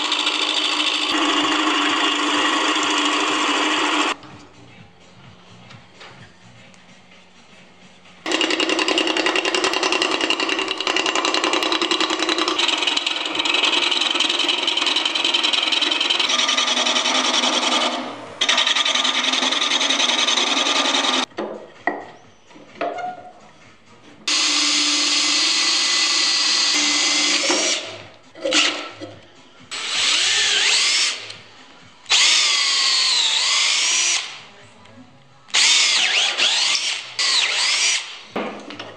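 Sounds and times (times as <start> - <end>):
wood lathe tool cutting: 0.0 - 4.2, 8.3 - 21.3, 24.3 - 27.9, 29.8 - 31.2, 32.1 - 34.3, 35.6 - 38.1
cordless drill whining: 32.1 - 34.4, 35.5 - 38.2.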